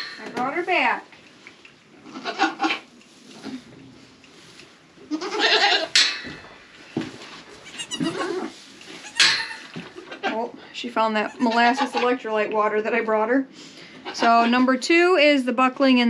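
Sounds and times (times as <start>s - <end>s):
goats bleating: 2.0s - 2.8s, 5.1s - 5.9s, 7.6s - 10.4s, 11.2s - 12.1s.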